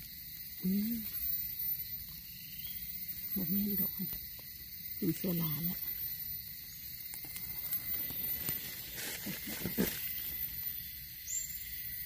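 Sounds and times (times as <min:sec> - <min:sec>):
scraping through leaf litter and soil: 0:07.3 - 0:10.4.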